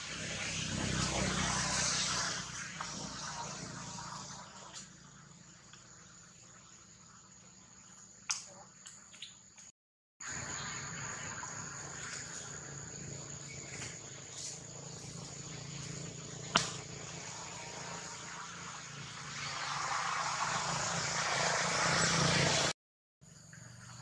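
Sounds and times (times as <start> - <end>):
high-pitched insect tone: 0.9 - 22.4
broad rushing noise: 13.7 - 22.8.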